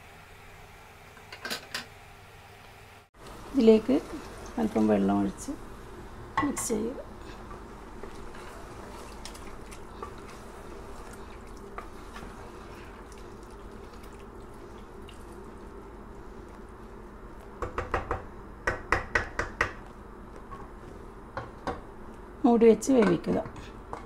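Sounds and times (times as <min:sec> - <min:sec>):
faint hum: 0:00.0 - 0:24.0
spatula stirring wet food in pot: 0:06.6 - 0:17.5
spatula knocking against pot: 0:17.6 - 0:19.9.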